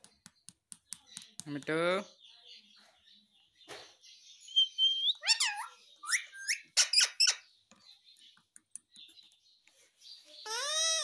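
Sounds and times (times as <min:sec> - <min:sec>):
parakeet chirping and whistling: 0:04.4 - 0:07.5, 0:10.4 - 0:11.0.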